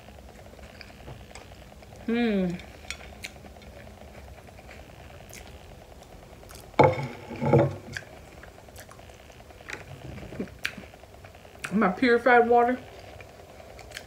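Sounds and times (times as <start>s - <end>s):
low room hum: 0.0s - 14.0s
woman vocal sound: 2.0s - 2.7s
chewing crunches: 2.6s - 6.8s, 7.8s - 10.9s, 13.0s - 14.0s.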